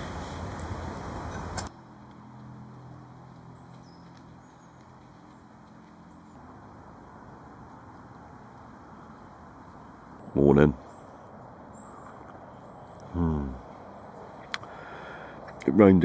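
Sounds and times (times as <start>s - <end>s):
faint steady low hum: 0.0s - 16.0s
faint bird chirps: 8.8s - 14.9s.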